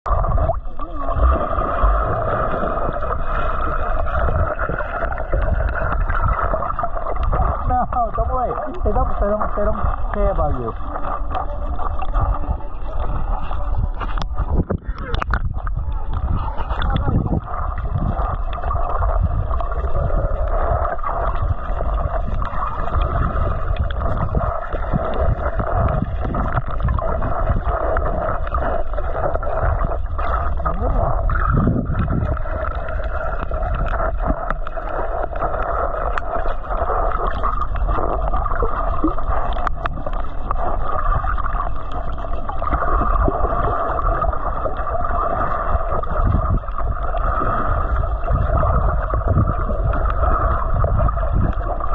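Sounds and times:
muffled underwater rumble: 0:00.0 - 0:51.9.

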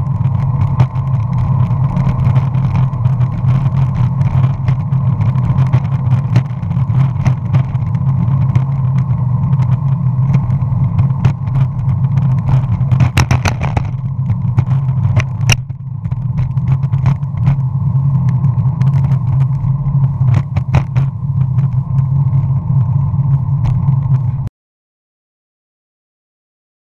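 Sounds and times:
sharp clicks from bumps: 0:00.0 - 0:22.9
longboard wheels rumbling on asphalt: 0:00.0 - 0:24.5.

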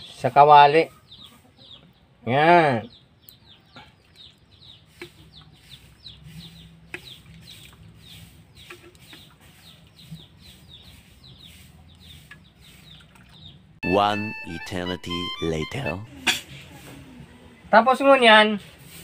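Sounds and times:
chicks peeping: 0:00.0 - 0:16.1.

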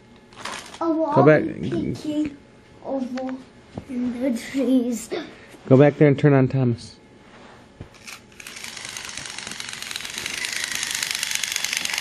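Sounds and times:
toy train motor whirring: 0:07.9 - 0:12.0.

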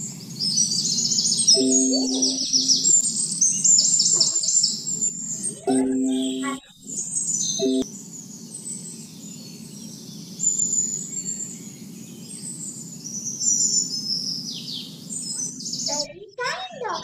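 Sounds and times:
birds chirping: 0:00.7 - 0:07.8.

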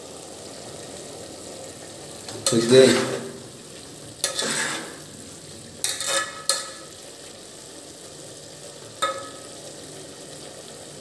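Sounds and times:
faint hiss of cooking: 0:00.0 - 0:11.0
spoon scraping and knocking pot: 0:04.2 - 0:05.0, 0:05.8 - 0:06.9, 0:09.0 - 0:09.5.

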